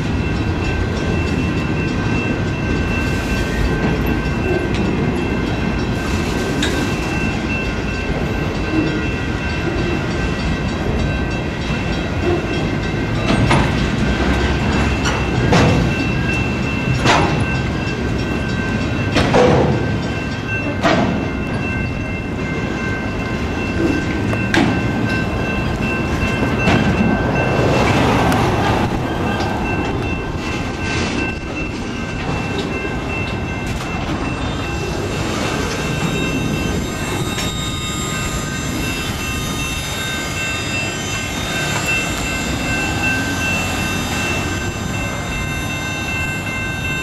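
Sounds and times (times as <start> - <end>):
train wheels rumbling on rail: 0.0 - 47.0
heavy metallic wheel clunks: 12.2 - 17.6, 19.1 - 20.0, 20.6 - 21.7, 23.8 - 31.4.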